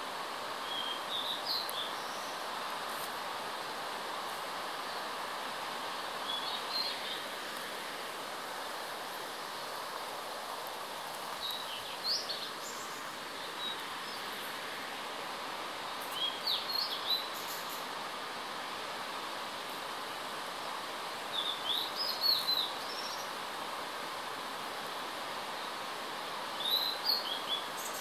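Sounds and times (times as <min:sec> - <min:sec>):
distant waterfall rushing: 0:00.0 - 0:28.0
songbird chirping: 0:11.4 - 0:14.3.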